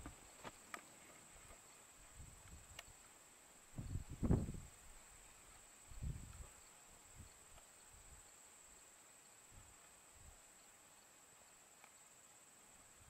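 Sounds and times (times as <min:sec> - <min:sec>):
faint high-pitched hum: 0:00.0 - 0:13.0
wind bumps on microphone: 0:03.8 - 0:04.7, 0:05.9 - 0:06.5.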